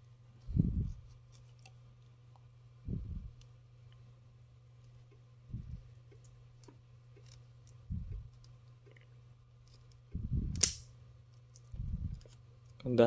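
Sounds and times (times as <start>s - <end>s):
low hum: 0.0s - 12.4s.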